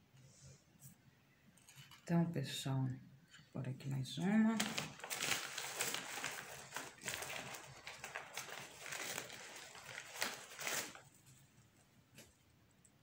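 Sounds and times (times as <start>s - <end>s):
rustling and crinkling handling noise: 1.6s - 2.1s, 4.1s - 12.4s.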